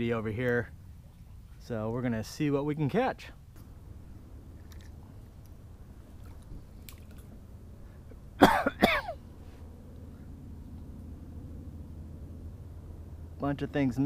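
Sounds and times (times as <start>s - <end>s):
faint outdoor background: 0.0s - 14.0s
man clearing his throat: 8.4s - 9.2s.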